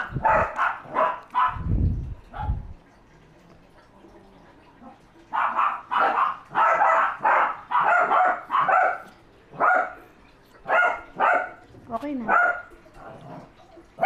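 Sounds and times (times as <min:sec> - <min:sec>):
dog barking: 0:00.0 - 0:01.7, 0:02.3 - 0:02.6, 0:04.9 - 0:10.0, 0:10.6 - 0:11.6, 0:12.2 - 0:13.2.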